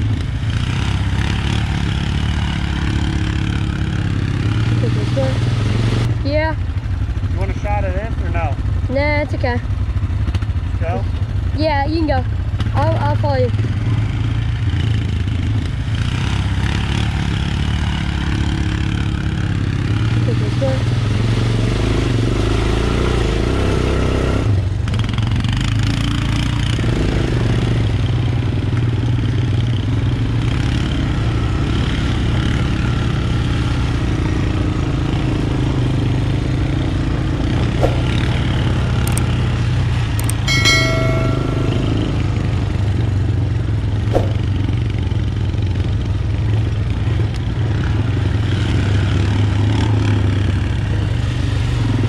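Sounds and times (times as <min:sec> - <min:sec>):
atv engine running: 0:00.0 - 0:52.0
sharp clicks or knocks: 0:39.1 - 0:39.3, 0:40.2 - 0:40.5.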